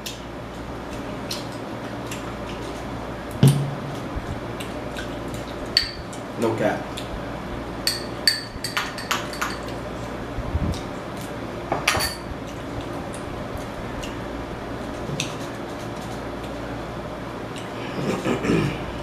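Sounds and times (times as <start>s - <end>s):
metal spoon clinking on glass bowl: 5.8s - 6.0s, 7.9s - 9.7s.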